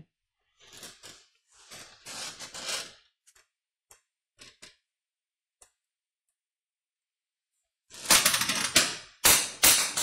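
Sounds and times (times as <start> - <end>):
rubbing and scraping: 0.5 - 3.4.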